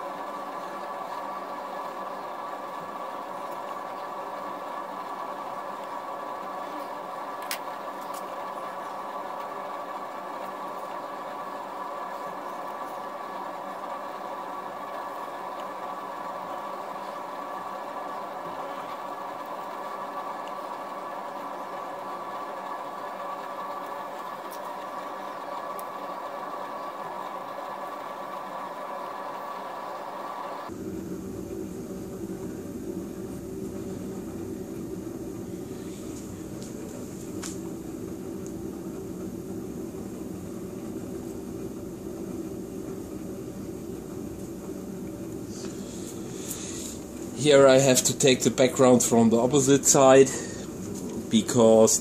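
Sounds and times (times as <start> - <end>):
machine whirring hum: 0.0 - 52.0.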